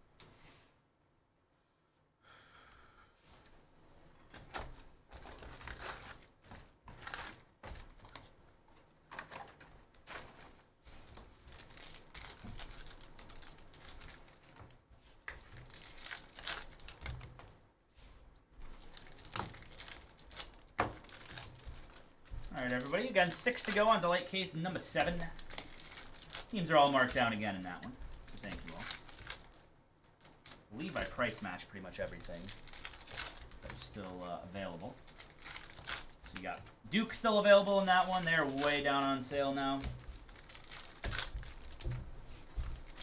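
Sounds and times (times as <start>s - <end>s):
foil wrappers tearing and crinkling: 5.2s - 8.2s, 10.0s - 14.8s, 15.4s - 17.4s, 18.6s - 43.0s.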